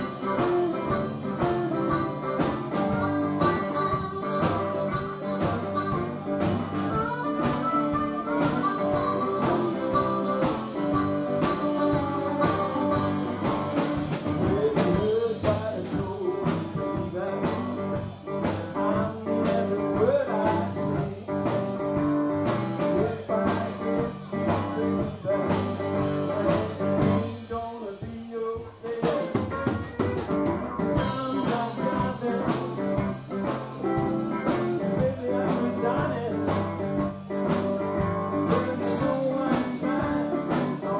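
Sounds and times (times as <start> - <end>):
blues band playing live: 0.0 - 40.9
drum kit: 0.0 - 40.9.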